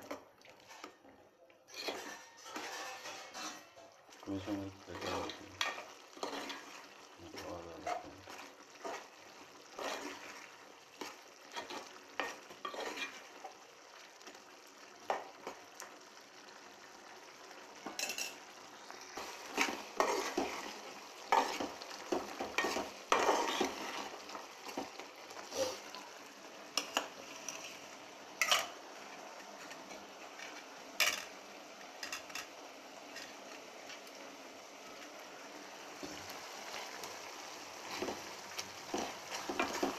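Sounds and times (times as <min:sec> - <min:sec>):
spoon scraping a metal pot: 0:01.7 - 0:03.8, 0:05.0 - 0:06.7, 0:11.5 - 0:13.3, 0:21.3 - 0:24.1.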